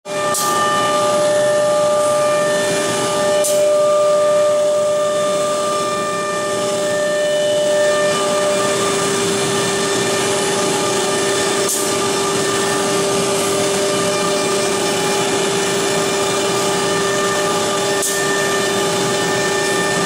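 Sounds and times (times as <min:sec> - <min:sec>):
cnc router spindle whine: 0:00.1 - 0:20.0.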